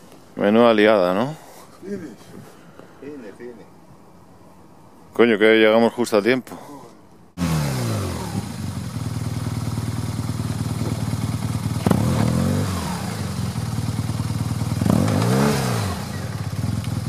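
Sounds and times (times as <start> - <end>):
motorcycle engine revving: 7.4 - 17.0
wheel spinning in loose dirt: 7.4 - 17.0.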